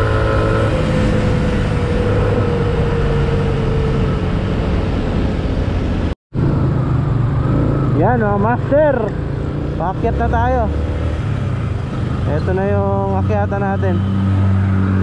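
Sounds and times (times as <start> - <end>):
wind noise on microphone: 0.0 - 6.8.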